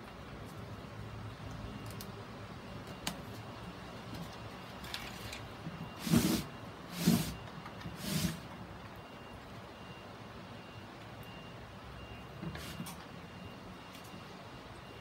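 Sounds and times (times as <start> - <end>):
scraping rustles of plastic board: 6.0 - 8.5.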